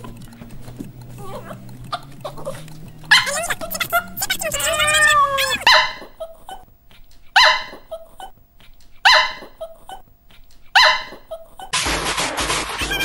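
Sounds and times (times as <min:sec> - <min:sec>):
small dog barking: 0:01.2 - 0:06.7, 0:07.3 - 0:08.4, 0:09.0 - 0:10.1, 0:10.7 - 0:11.8.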